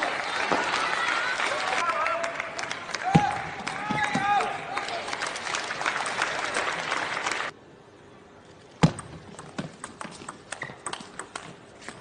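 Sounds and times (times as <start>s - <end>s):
arena crowd noise: 0.0s - 7.6s
table tennis ball clicks: 8.8s - 12.0s.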